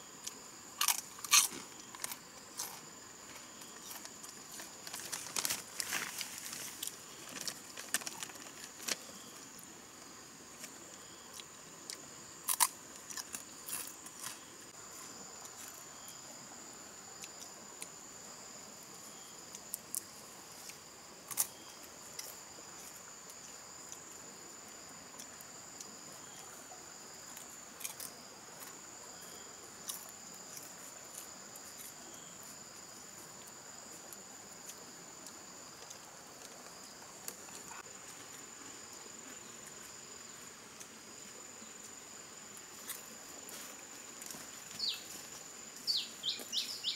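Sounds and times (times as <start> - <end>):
insects trilling: 0.0 - 46.9
rustling: 3.8 - 9.2.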